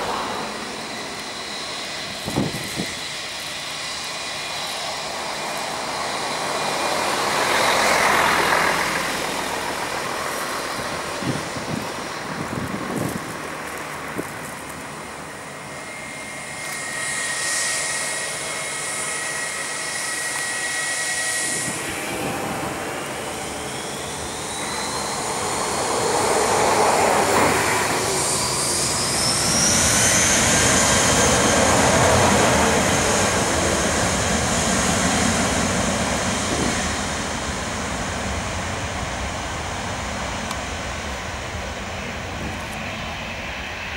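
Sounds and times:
jet engines whining: 0.0 - 43.9
jet roar: 0.0 - 43.9.

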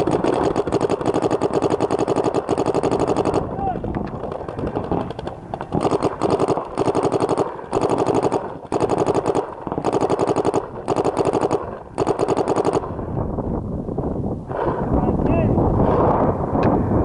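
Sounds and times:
paintball marker rapid shots: 0.0 - 12.9.

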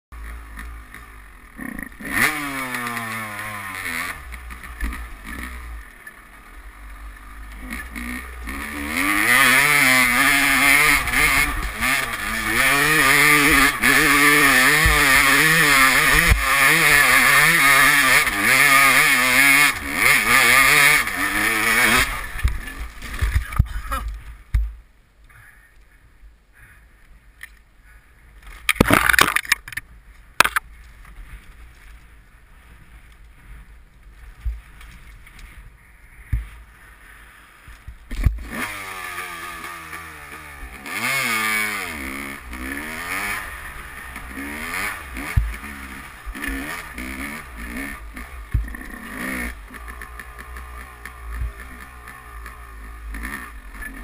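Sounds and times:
dirt bike engine revving: 0.2 - 24.4, 35.4 - 54.0
scrapes and clicks: 34.0 - 35.7.

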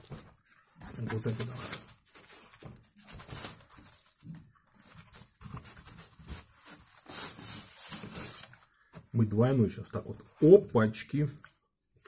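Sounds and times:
pizza crackling and rustling: 0.0 - 8.7.

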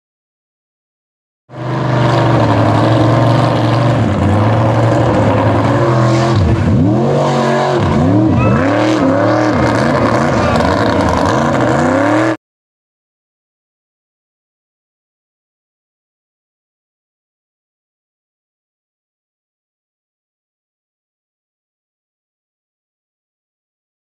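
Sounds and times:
truck engine revving: 1.5 - 12.4.

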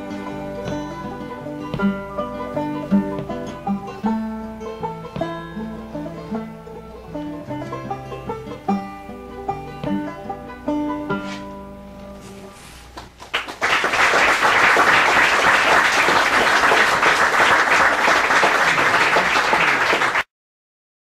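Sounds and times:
banjo and acoustic guitar chord: 0.0 - 12.4
small group applauding: 13.0 - 20.3.

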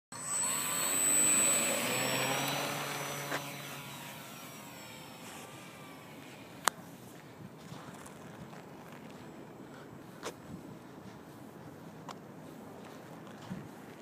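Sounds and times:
model plane motor and propeller whining: 0.1 - 10.0.

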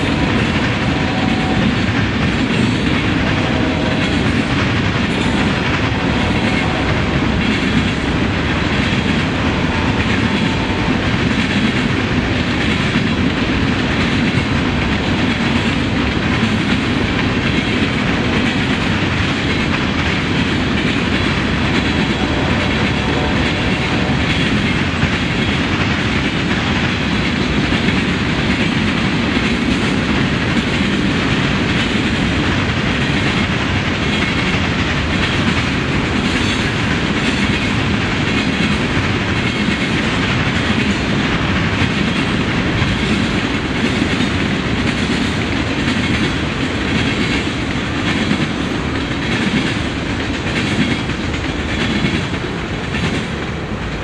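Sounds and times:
freight train cars rolling by: 0.0 - 54.0.

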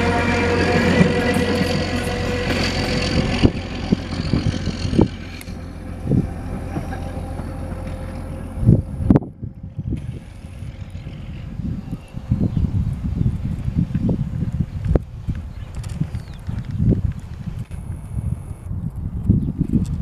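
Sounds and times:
railcar diesel engine droning: 0.0 - 13.3
wind thumps on microphone: 8.6 - 20.0.

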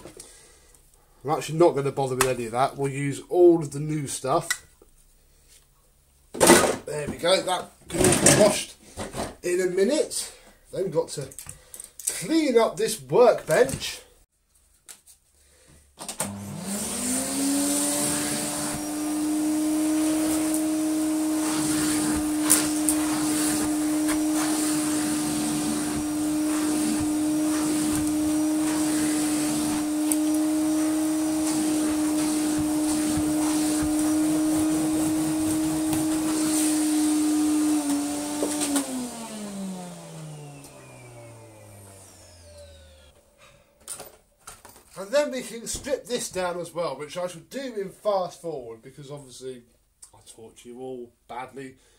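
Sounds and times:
vacuum cleaner running: 16.1 - 43.3
vacuum motor winding down: 16.2 - 43.2.

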